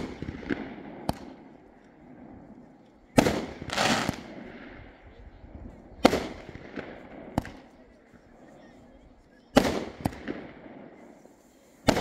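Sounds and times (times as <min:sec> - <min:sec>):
firework bangs: 0:00.0 - 0:01.6, 0:03.2 - 0:04.8, 0:06.0 - 0:07.7, 0:09.6 - 0:12.0.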